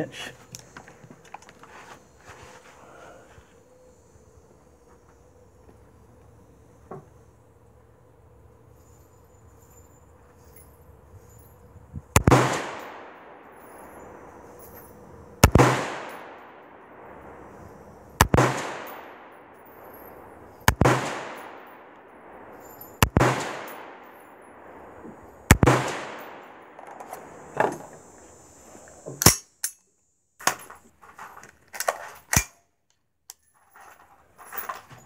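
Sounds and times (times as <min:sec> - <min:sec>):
rifle shots echoing: 0:12.2 - 0:28.2
rifle handling clicks: 0:31.4 - 0:33.5.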